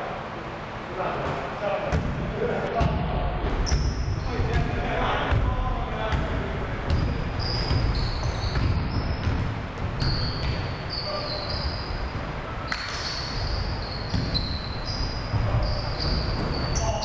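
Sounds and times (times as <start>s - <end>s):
basketball bouncing on hardwood: 2.8s - 10.8s, 11.5s - 16.8s
sneakers squeaking: 2.8s - 17.0s.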